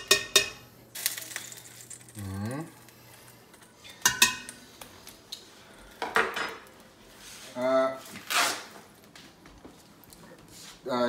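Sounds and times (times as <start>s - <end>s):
metal ladle clinking on pots: 0.0s - 0.6s, 3.9s - 4.6s.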